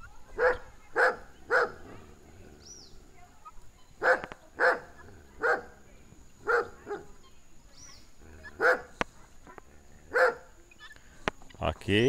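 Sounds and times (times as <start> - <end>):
dog barking: 0.3 - 2.1, 4.0 - 5.8, 6.4 - 7.2, 8.4 - 9.0, 10.1 - 10.5.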